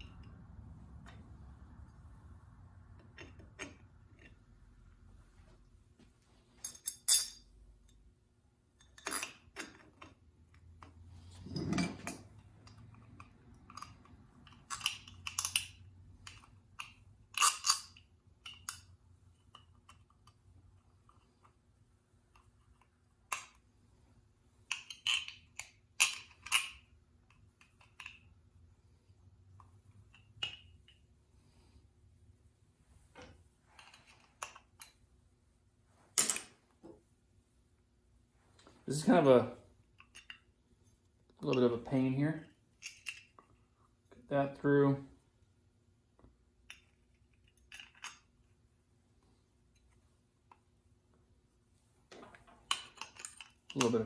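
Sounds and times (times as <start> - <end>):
small metal parts clinking: 6.6 - 7.5, 8.8 - 10.2, 11.4 - 18.9, 24.7 - 28.3, 42.7 - 43.6, 46.7 - 48.4, 52.6 - 54.0.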